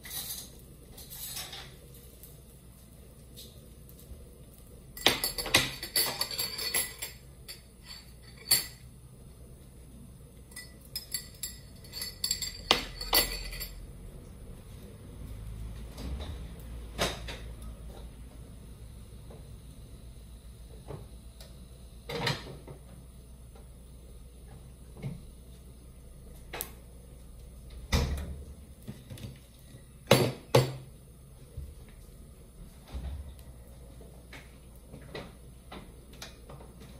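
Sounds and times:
dishes and utensils clinking: 0.0 - 1.9, 5.0 - 8.8, 10.5 - 13.8.

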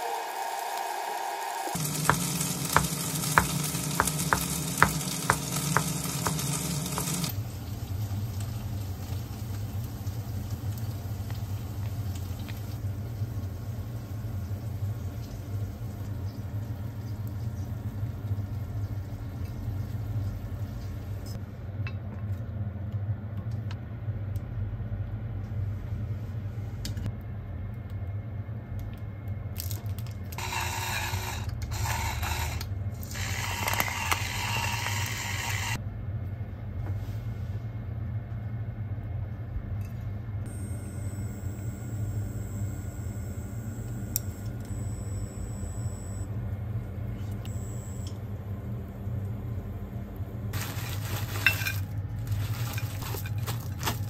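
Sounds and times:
pepper mill grinding: 1.8 - 7.3, 50.6 - 54.0
steady low hum: 34.2 - 54.0.

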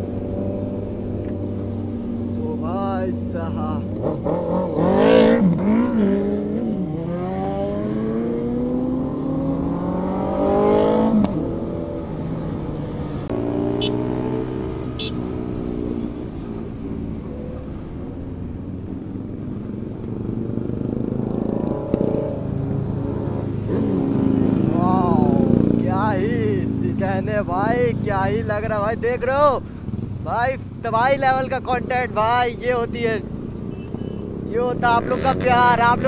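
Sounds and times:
motorcycle engine accelerating: 3.9 - 16.2.

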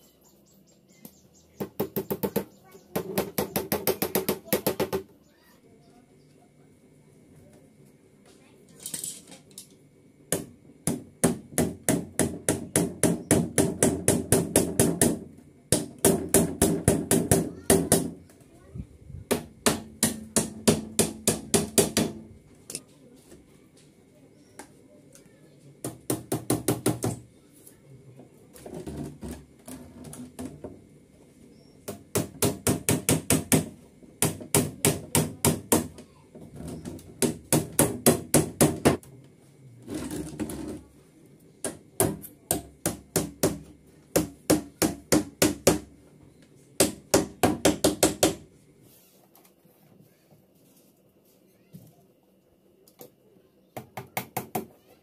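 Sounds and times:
nails tapped into plywood: 41.6 - 45.9, 46.8 - 48.4.

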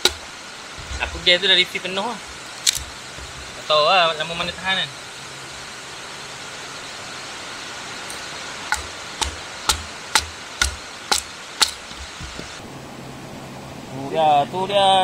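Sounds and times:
hatchet splitting wood knocks: 0.0 - 0.2, 8.7 - 12.6
steady rushing noise: 0.0 - 15.0.

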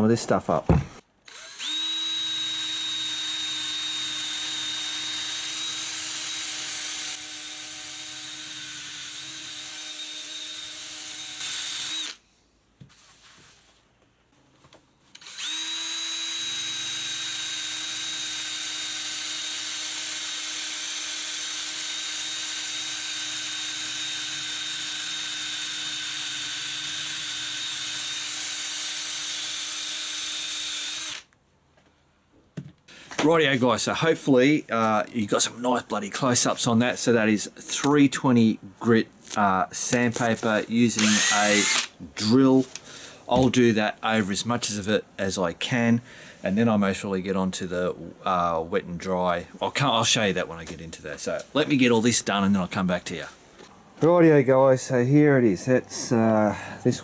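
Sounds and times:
electric drill sanding metal: 1.3 - 12.2, 15.2 - 31.3, 39.8 - 42.8.

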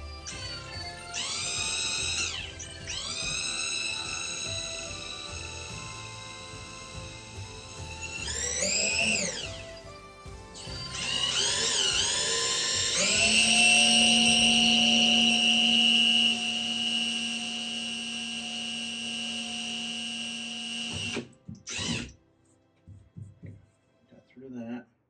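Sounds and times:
cordless drill whining: 0.0 - 22.1.

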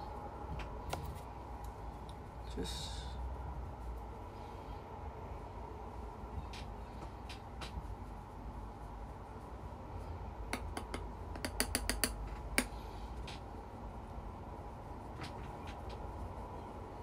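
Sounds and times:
low room hum: 0.0 - 17.0
makeup brush tapping container: 10.5 - 12.7.

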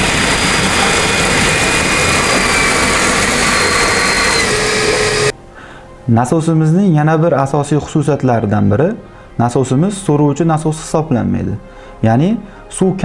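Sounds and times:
faint high whine: 0.0 - 5.4.

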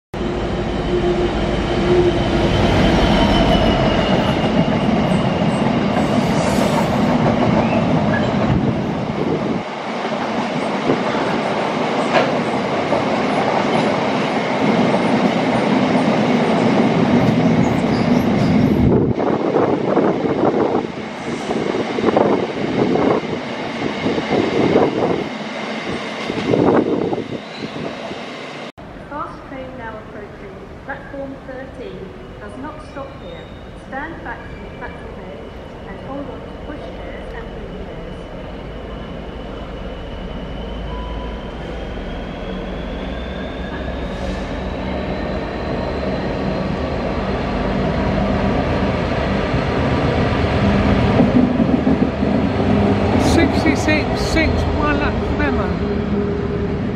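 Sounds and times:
diesel locomotive rumbling: 0.2 - 27.3, 28.8 - 56.9.

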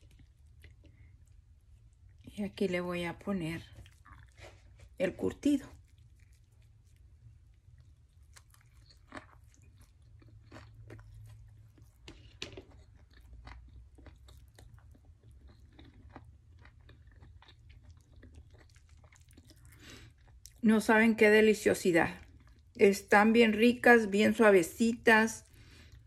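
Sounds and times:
person chewing food: 0.0 - 2.3, 3.6 - 5.0, 5.6 - 20.6, 22.2 - 22.8
low steady hum: 0.0 - 26.0.

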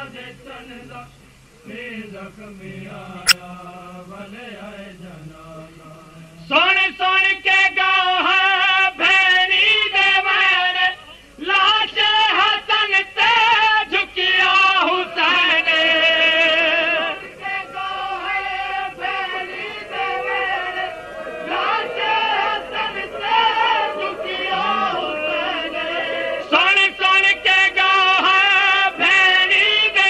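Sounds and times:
person singing with vibrato: 22.6 - 30.0.

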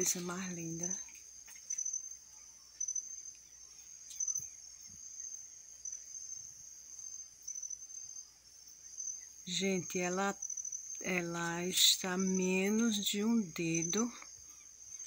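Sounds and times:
crickets trilling: 0.0 - 15.0.

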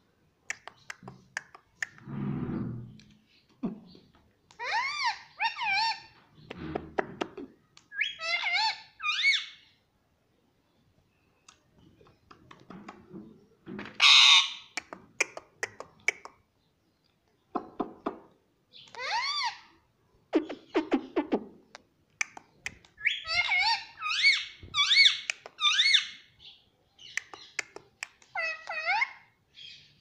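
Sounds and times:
parakeet calling: 8.0 - 9.6, 18.9 - 19.7, 23.0 - 26.2
parakeet squawk: 14.0 - 14.8, 23.0 - 26.2
sharp clicks: 21.7 - 23.0.

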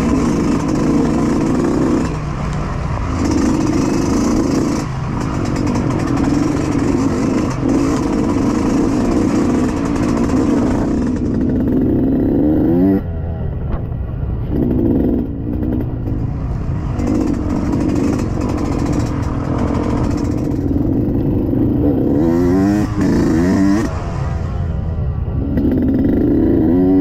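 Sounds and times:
dirt bike engine revving: 0.0 - 13.1, 14.5 - 24.5, 25.4 - 27.0.

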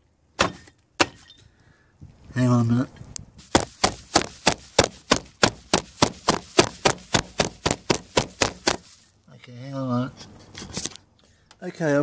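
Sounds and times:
ice in plastic bag being pounded: 3.4 - 9.1.

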